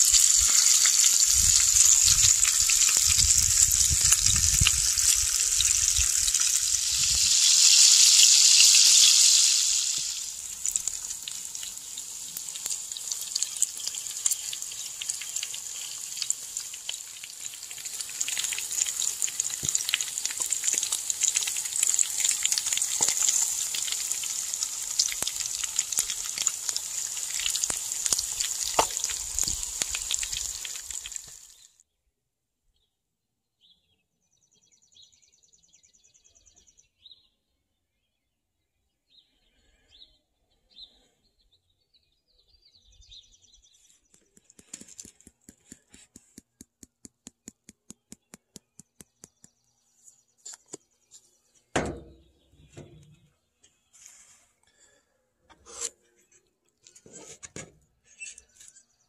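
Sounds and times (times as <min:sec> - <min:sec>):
bacon and eggs sizzling in a pan: 0:00.0 - 0:31.7
songbirds chirping: 0:10.3 - 0:24.0, 0:31.5 - 0:59.0.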